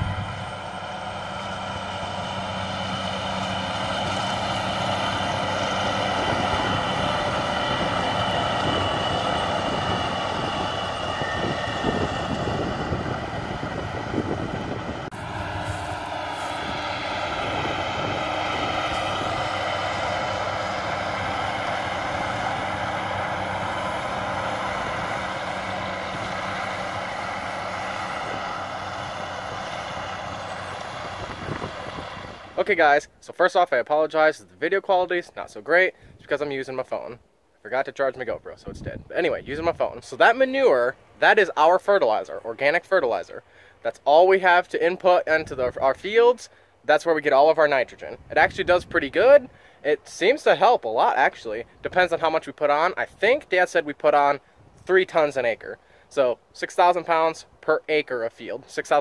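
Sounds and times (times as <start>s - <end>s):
steady whine: 0.0s - 26.9s
truck engine running: 0.0s - 32.8s.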